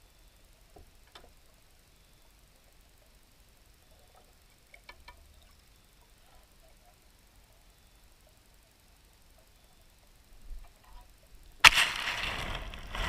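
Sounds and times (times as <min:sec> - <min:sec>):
faint clicks underwater: 0:04.0 - 0:05.6.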